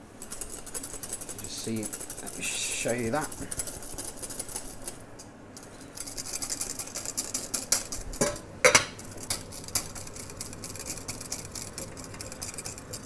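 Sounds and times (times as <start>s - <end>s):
wire whisk scraping glass bowl: 0.2s - 4.6s, 9.1s - 13.0s.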